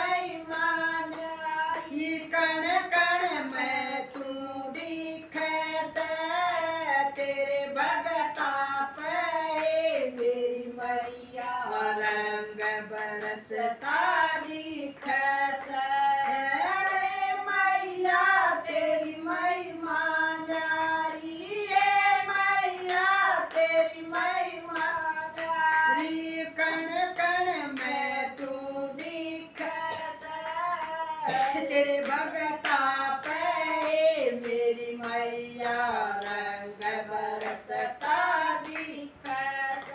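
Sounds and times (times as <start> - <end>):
hand claps: 0.0 - 17.8, 19.0 - 39.9
women singing devotional song: 0.0 - 39.9.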